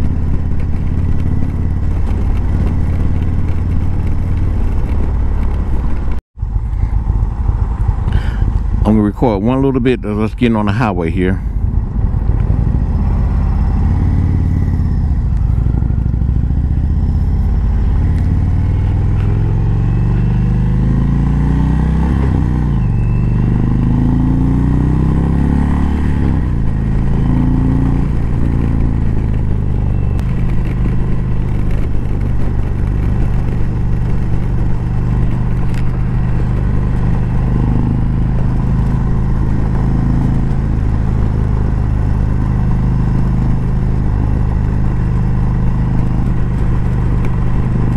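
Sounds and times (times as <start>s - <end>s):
motorcycle engine accelerating: 0.0s - 47.9s.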